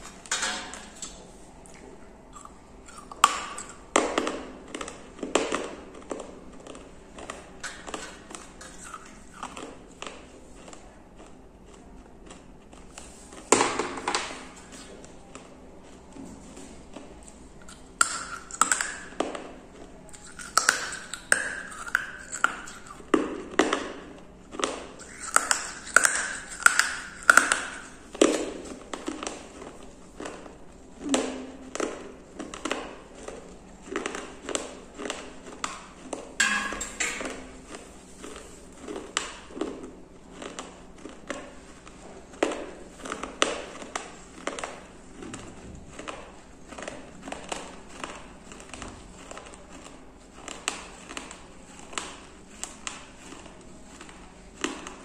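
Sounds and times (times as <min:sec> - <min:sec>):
clay fragments crunching in teeth: 0:20.1 - 0:23.0.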